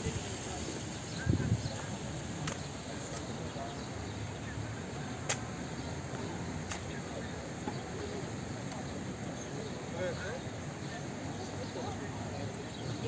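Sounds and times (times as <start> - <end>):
faint distant voices: 0.0 - 13.0.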